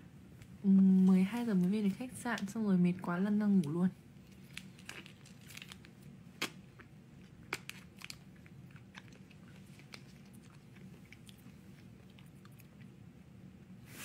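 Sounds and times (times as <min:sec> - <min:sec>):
crunchy bites of snack: 0:04.2 - 0:12.7
chewing clicks: 0:06.4 - 0:13.0.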